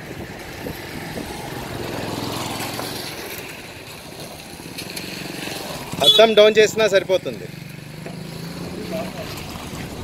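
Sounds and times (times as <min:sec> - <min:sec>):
motor vehicle engine running: 0:06.8 - 0:10.0.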